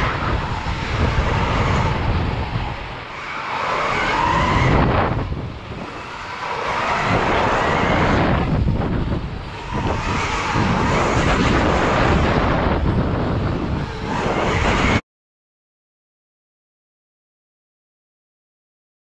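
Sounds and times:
wind buffeting on camera: 0.0 - 15.0.

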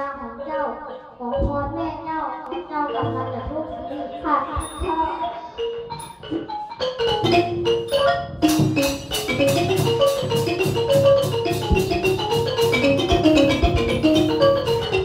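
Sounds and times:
steady percussion beat: 1.4 - 15.0
xylophone quick runs: 2.9 - 15.0.

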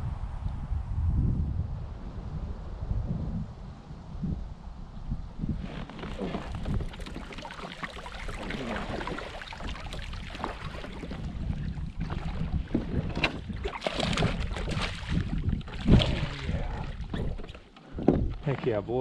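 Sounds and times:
wind on microphone: 0.0 - 19.0
water splashing against kayak: 5.4 - 18.8
boat and gear knocking: 5.7 - 18.8.

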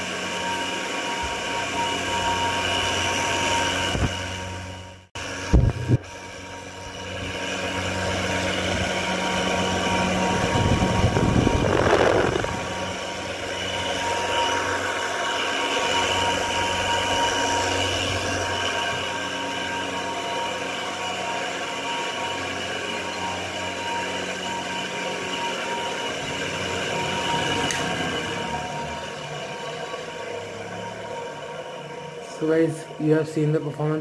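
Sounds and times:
exhaust fan droning: 0.0 - 34.0
rushing air noise: 5.4 - 16.9.

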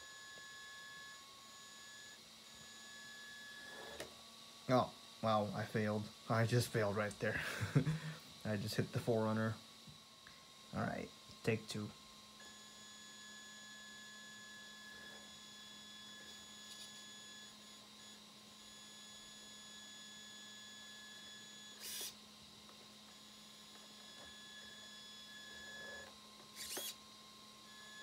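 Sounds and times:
faint electronic whine: 0.0 - 28.0
rc car motor throttle blips: 12.4 - 22.2, 23.1 - 27.0.

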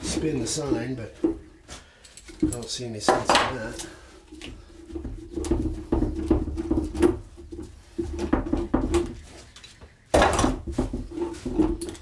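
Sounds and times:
metal clamps rattling and clicking: 2.0 - 3.9.

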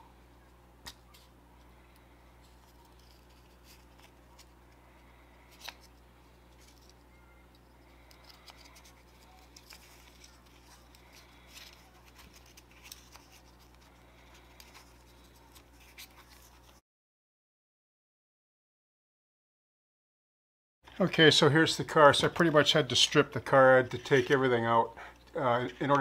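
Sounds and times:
low electrical hum: 0.0 - 16.8, 20.9 - 26.0
light clicks and scratches: 5.5 - 16.8.

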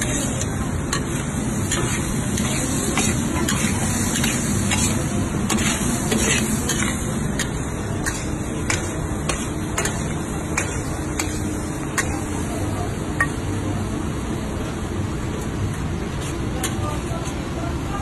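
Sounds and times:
utensils scraping a wok: 0.0 - 12.3
frying sizzle: 0.0 - 13.1.

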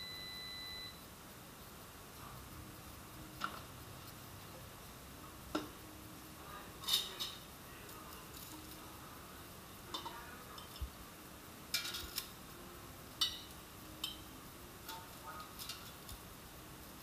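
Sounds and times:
metal tongs clinking: 6.8 - 7.4, 9.9 - 10.9, 11.7 - 12.3, 13.2 - 16.2.

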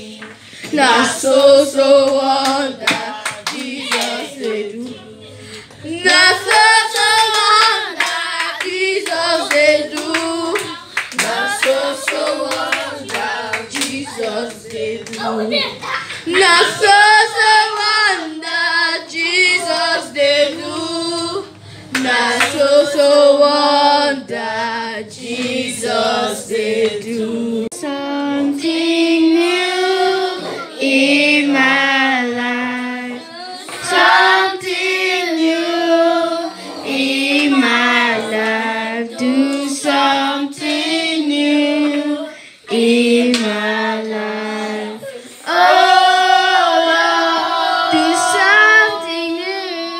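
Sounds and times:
children singing along: 0.0 - 5.2, 5.8 - 49.9
girl singing into microphone: 13.9 - 25.8, 27.0 - 49.9.

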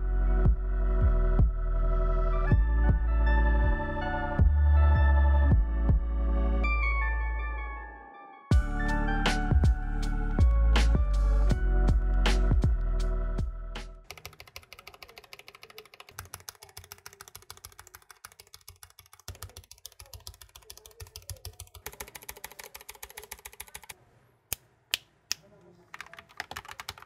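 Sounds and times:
music: 0.0 - 14.1
typing on mechanical keyboard: 14.1 - 24.0, 25.9 - 27.0.

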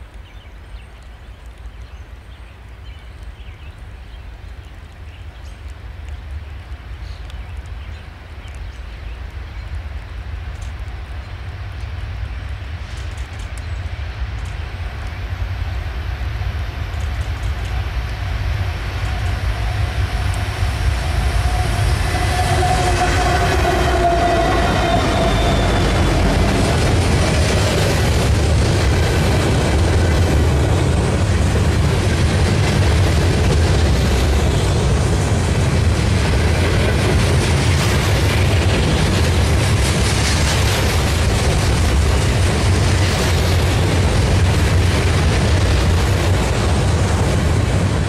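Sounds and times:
diesel locomotive engines passing: 6.3 - 48.0.

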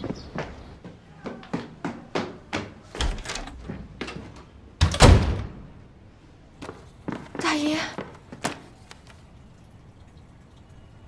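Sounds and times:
footsteps on hard stairs: 0.0 - 5.0
door slamming shut: 4.8 - 5.7.

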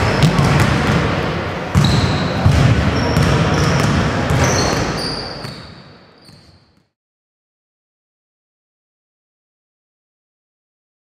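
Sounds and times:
sneaker squeaks: 0.0 - 0.6, 1.7 - 7.0
basketballs bouncing: 0.0 - 6.8.

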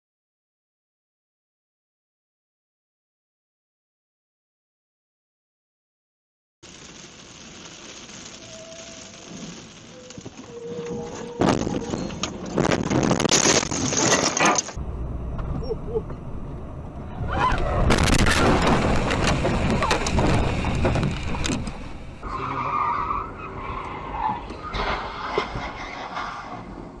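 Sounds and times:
road noise: 6.6 - 27.0
car tyres skidding: 17.1 - 27.0
vehicle collision: 17.2 - 22.5, 23.9 - 27.0.

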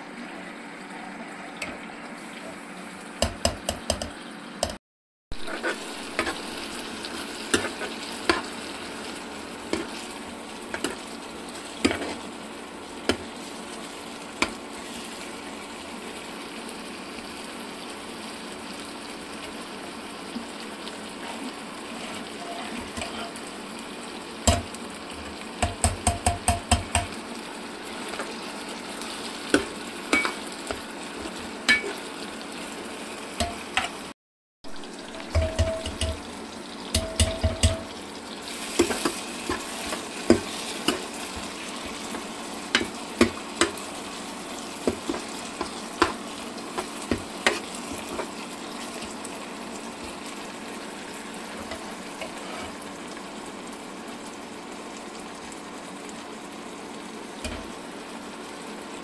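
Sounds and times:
food sizzling in oil: 0.0 - 59.0
spoon clicking against pan: 35.3 - 36.2.

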